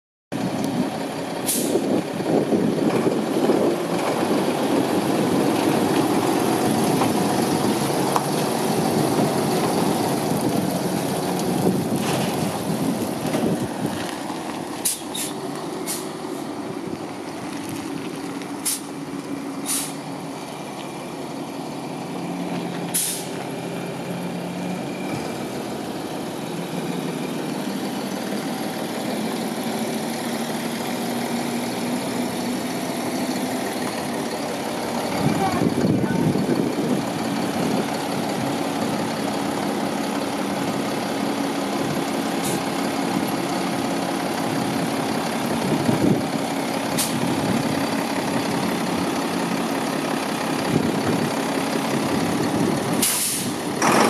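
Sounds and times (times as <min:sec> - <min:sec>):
diesel truck engine: 0:00.3 - 0:54.0
air brake hisses: 0:01.4 - 0:01.8, 0:14.8 - 0:16.1, 0:18.6 - 0:18.9, 0:19.6 - 0:20.0, 0:22.9 - 0:23.4, 0:47.0 - 0:47.2, 0:53.0 - 0:53.6.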